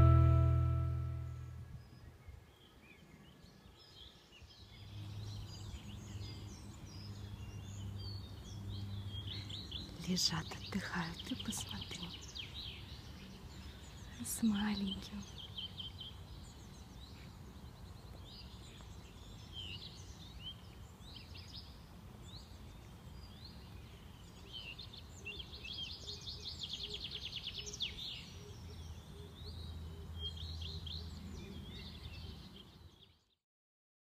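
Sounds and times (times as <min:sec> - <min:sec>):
songbirds chirping and singing: 0:01.8 - 0:33.2.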